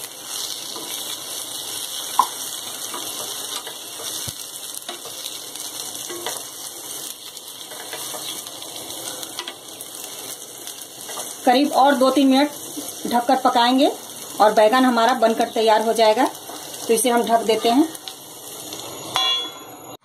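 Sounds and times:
eggplants sizzling in hot oil: 0.0s - 20.0s
sharp clink: 19.1s - 19.7s.

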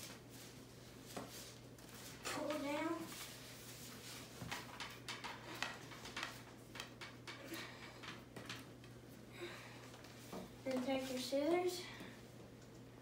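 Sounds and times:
cord ticking and rustling: 1.1s - 9.2s.

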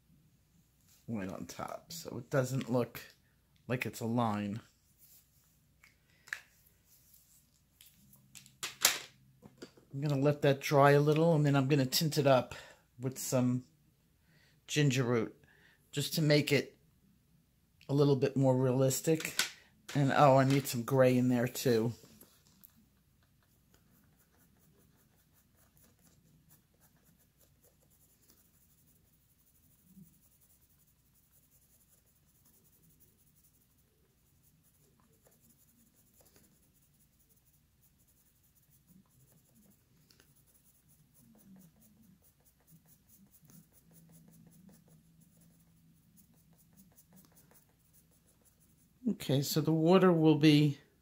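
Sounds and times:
pencil scratching on paper: 23.2s - 49.0s.

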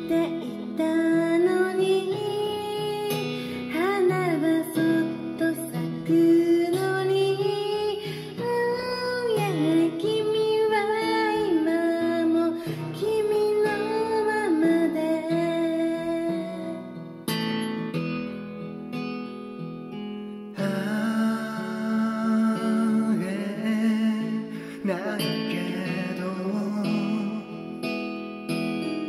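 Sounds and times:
woman singing: 0.0s - 17.1s, 20.6s - 27.6s
acoustic guitar backing track: 0.0s - 29.0s.

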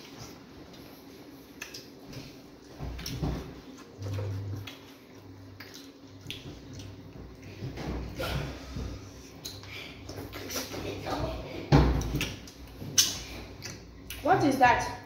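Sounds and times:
wet chewing and lip smacks: 0.0s - 7.6s, 9.3s - 10.8s, 12.0s - 14.2s
brief low hum: 3.9s - 5.0s.

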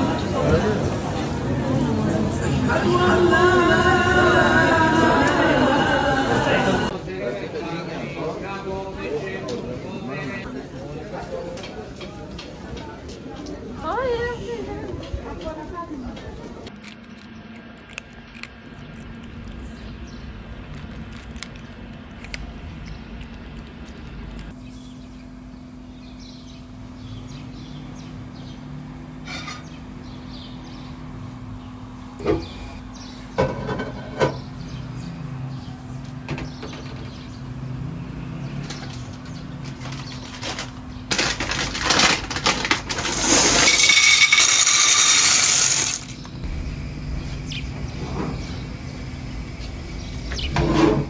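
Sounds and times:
knocks and clinks: 42.9s - 46.2s.

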